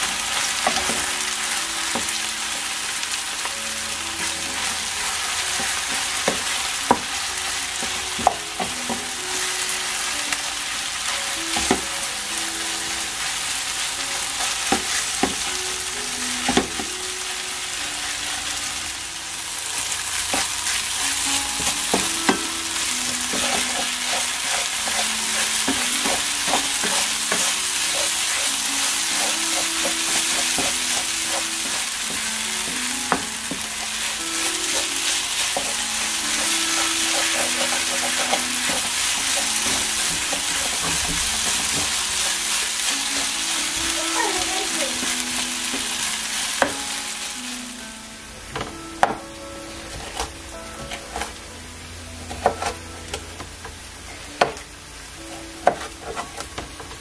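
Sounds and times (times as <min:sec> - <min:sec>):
food sizzling in frying pan: 0:00.0 - 0:57.0
soft background music: 0:00.0 - 0:57.0
utensil scraping pan: 0:23.2 - 0:32.8, 0:33.5 - 0:43.4.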